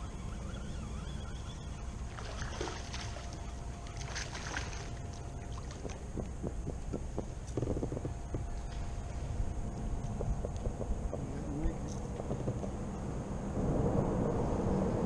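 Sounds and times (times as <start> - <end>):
low rumble of wind and water: 0.0 - 15.0
fish splashing in water: 2.1 - 6.2.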